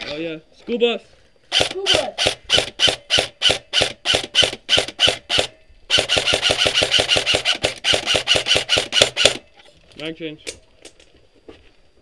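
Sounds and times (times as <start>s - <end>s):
airsoft rifle rapid shots: 1.5s - 9.4s.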